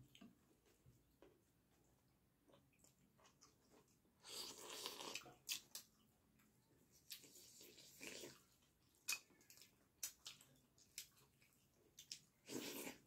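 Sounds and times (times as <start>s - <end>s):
chewing and fingers squishing food: 0.0s - 13.0s.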